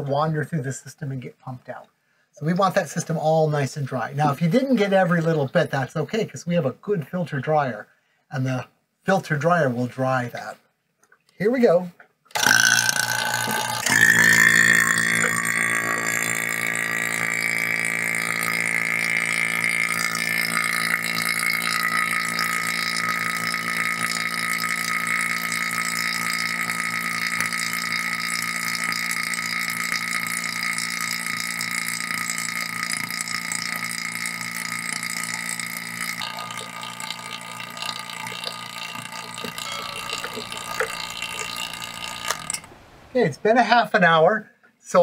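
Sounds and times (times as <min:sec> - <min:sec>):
vacuum pump buzzing hum: 0:12.3 - 0:43.2.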